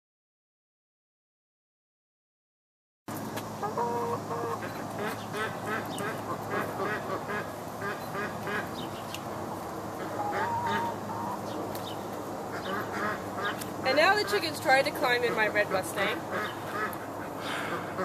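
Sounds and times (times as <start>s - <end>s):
chickens clucking: 3.2s - 18.0s.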